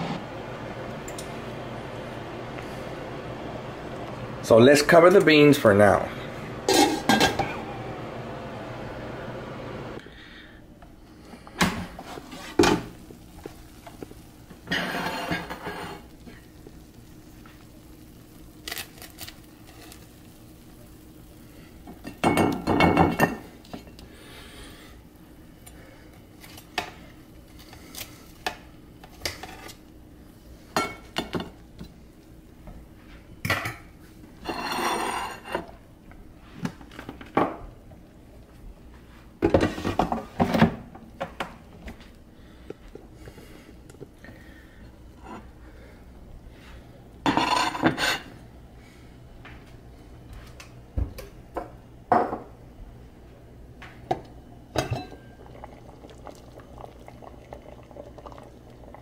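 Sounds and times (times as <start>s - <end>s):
utensils clinking on dishes: 6.7s - 7.6s, 54.8s - 55.3s.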